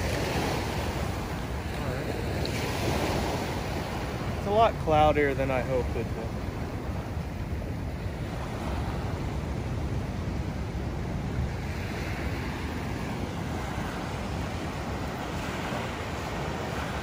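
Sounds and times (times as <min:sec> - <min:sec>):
ocean surf breaking on beach: 0:00.0 - 0:17.0
wind buffeting microphone: 0:00.0 - 0:17.0.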